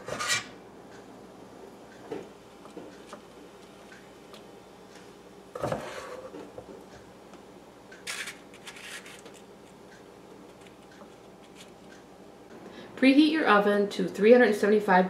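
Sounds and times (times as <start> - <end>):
spoon scraping metal bowl: 0.0 - 0.6.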